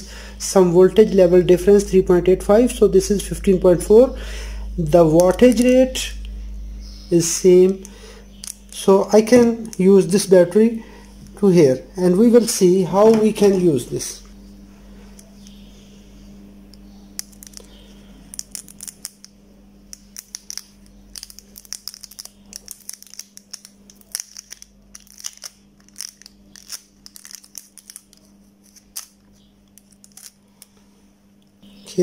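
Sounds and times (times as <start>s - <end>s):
low hum: 0.0s - 32.0s
tweezers clicking and tape crinkling: 5.2s - 6.4s, 7.6s - 8.8s, 16.8s - 30.8s.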